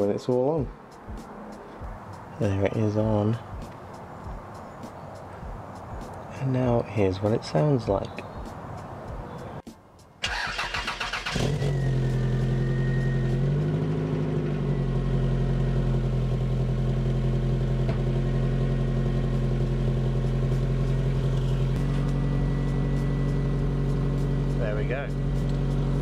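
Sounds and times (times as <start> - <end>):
car engine starting and idling: 10.2 - 26.0.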